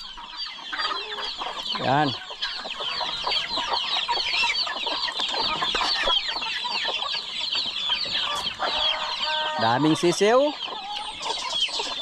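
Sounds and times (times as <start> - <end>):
chicks peeping: 0.0 - 12.0
hens clucking: 0.0 - 12.0.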